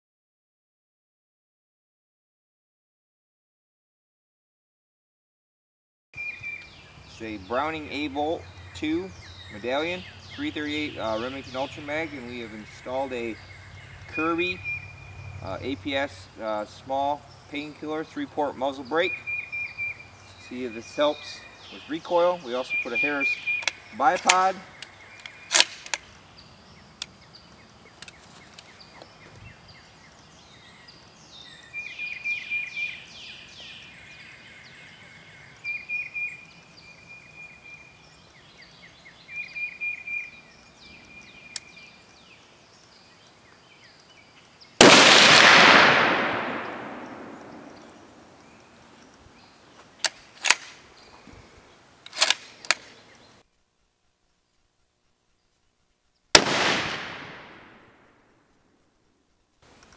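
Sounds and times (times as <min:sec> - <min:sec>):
birds chirping: 0:06.2 - 0:58.2
sharp clicks: 0:23.3 - 0:26.2, 0:40.5 - 0:42.2, 0:42.8 - 0:49.3, 0:50.0 - 0:50.8, 0:52.0 - 0:53.2
rifle shot with echo: 0:44.8 - 0:48.3, 0:56.4 - 0:58.0.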